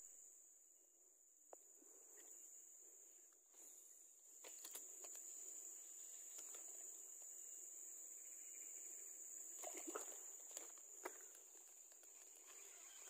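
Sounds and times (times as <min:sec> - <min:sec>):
insect chorus shrilling: 0:04.4 - 0:13.0.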